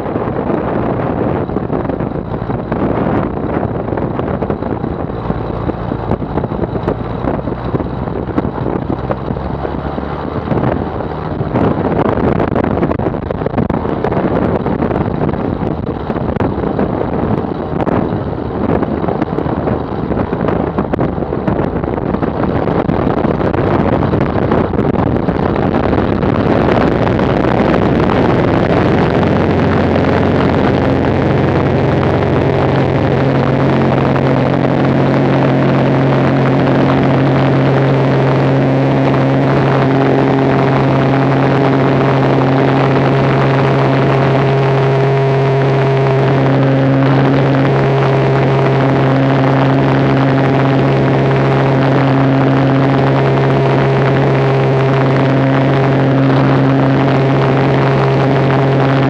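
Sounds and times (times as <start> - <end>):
propeller aircraft engine taxiing: 0.0 - 59.0
wind buffeting microphone: 0.0 - 59.0.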